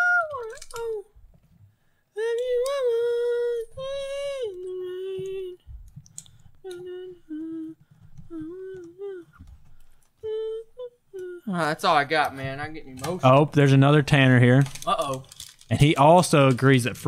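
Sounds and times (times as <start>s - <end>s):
person singing wordless tune: 0.0s - 1.2s, 2.1s - 9.6s, 10.2s - 11.8s.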